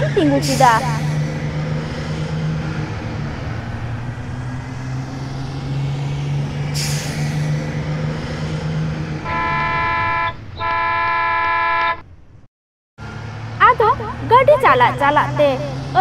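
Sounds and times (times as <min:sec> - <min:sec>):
bus engine running: 0:00.0 - 0:12.4, 0:13.0 - 0:16.0
air brake hiss: 0:06.8 - 0:07.4.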